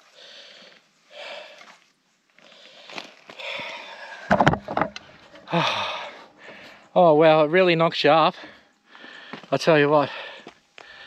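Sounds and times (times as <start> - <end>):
man breathing hard: 0.0 - 1.8, 2.4 - 4.3, 5.4 - 6.9, 8.3 - 11.0.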